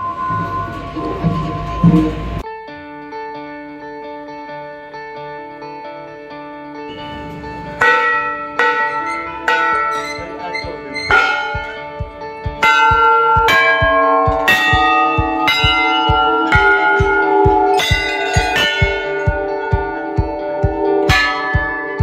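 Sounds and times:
brass bells ringing: 6.9s - 22.0s.

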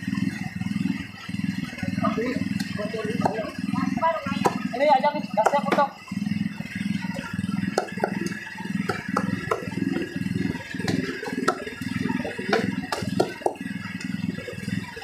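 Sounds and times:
steady low hum: 0.0s - 15.0s
cleaver chopping on wooden block: 2.6s - 3.4s, 4.4s - 4.6s, 5.4s - 5.9s, 7.7s - 9.7s, 10.8s - 11.6s, 12.5s - 13.6s.

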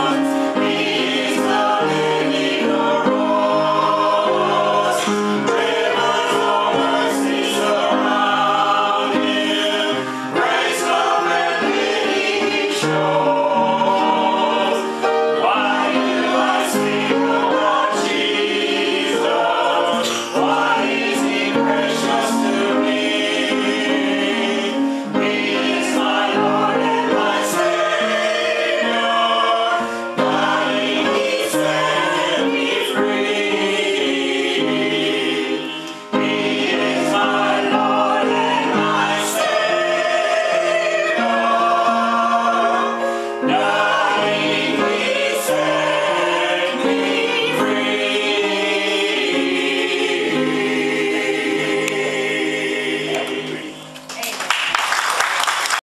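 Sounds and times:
choir singing in harmony: 0.0s - 54.0s.

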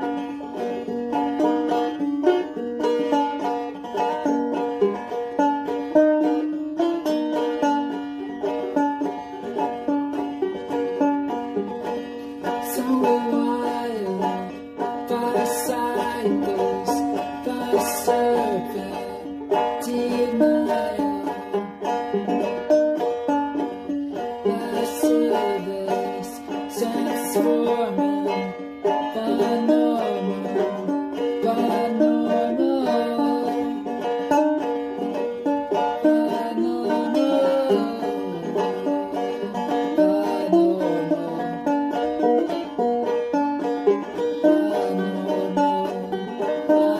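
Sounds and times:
banjo plucked notes: 0.0s - 46.9s.

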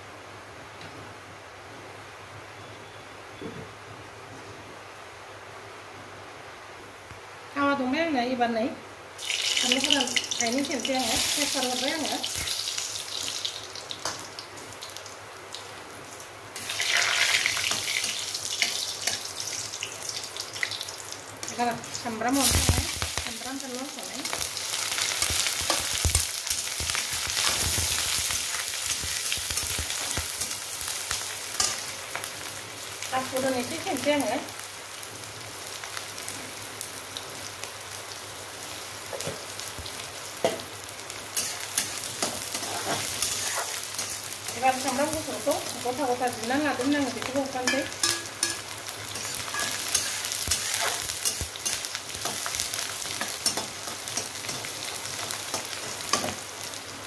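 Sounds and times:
hot oil sizzling in a wok: 7.5s - 57.0s
metal spatula scraping a pan: 41.4s - 44.2s, 49.2s - 52.4s.

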